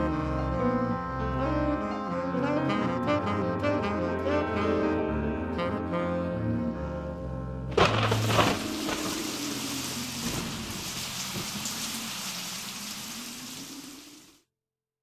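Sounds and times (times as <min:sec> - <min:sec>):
saxophone jazz: 0:00.0 - 0:07.7.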